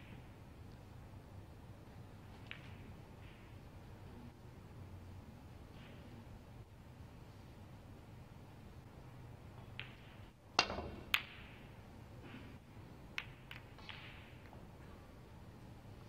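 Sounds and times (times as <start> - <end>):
snooker balls clicking: 2.3 - 3.6, 9.6 - 11.8, 13.1 - 14.6
cue striking ball with crack: 9.7 - 11.7.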